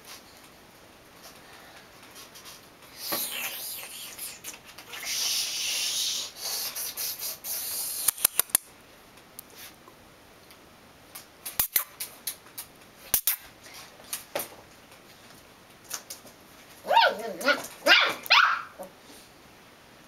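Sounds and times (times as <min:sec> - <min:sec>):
sharp clicks: 0:08.0 - 0:08.7.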